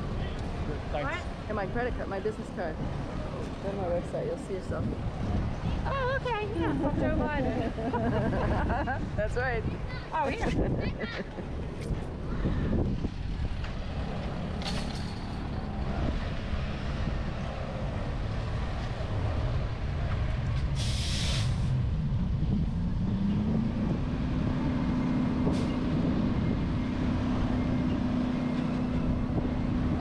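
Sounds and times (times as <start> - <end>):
air brakes hissing: 20.6 - 21.8.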